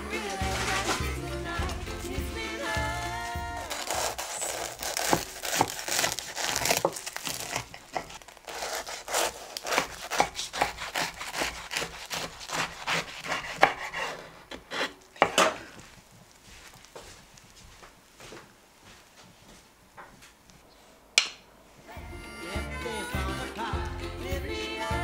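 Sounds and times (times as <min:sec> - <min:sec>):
knife crunching through toasted bread: 0:03.2 - 0:17.5.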